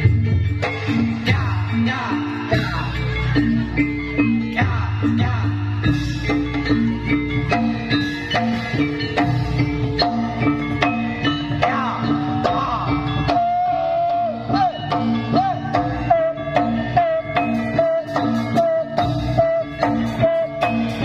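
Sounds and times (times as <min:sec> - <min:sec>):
wavering bending melody: 0:00.0 - 0:21.0.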